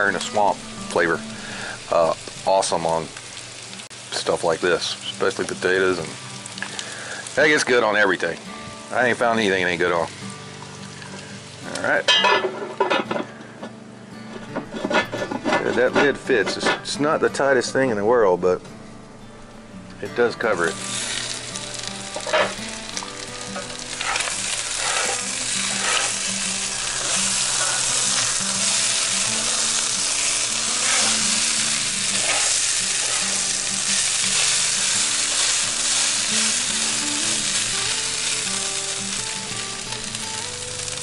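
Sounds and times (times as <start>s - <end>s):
food sizzling in a skillet: 0.0s - 13.5s, 20.2s - 41.0s
spatula scraping a skillet: 14.3s - 16.9s, 22.1s - 22.6s, 23.6s - 36.1s.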